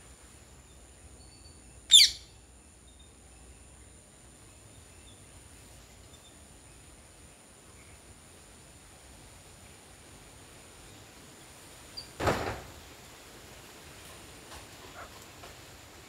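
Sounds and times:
bird's shrill falling call: 0:01.9 - 0:02.3.

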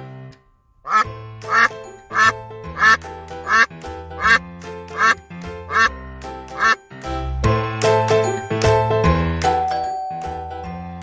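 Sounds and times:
background music: 0:00.0 - 0:11.0
duck quacking: 0:00.9 - 0:06.0, 0:06.6 - 0:06.8.

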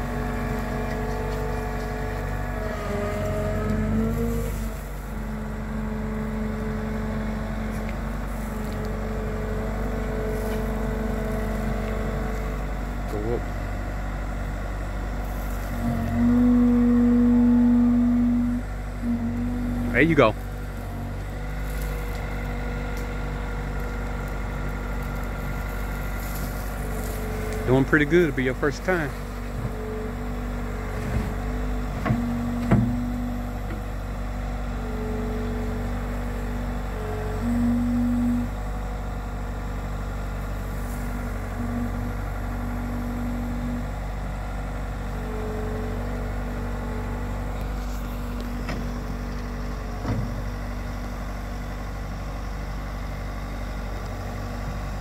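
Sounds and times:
diesel engine droning: 0:00.0 - 0:55.0
held tone: 0:15.8 - 0:20.2, 0:37.0 - 0:38.7.

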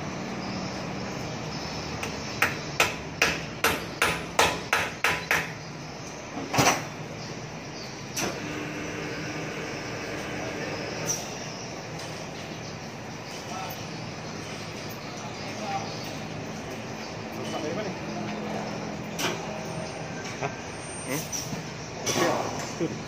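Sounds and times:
hammer tapping metal: 0:02.0 - 0:05.6.

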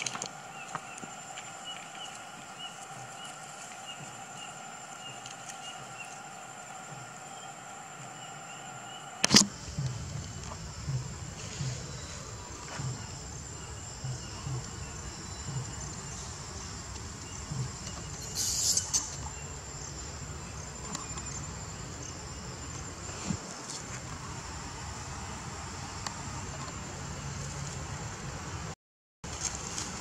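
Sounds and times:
high-pitched insect drone: 0:00.0 - 0:23.1
soft low thuds: 0:09.5 - 0:18.2.

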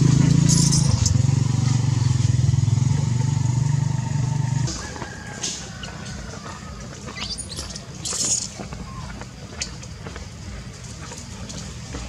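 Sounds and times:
motorcycle engine running: 0:00.0 - 0:05.1.

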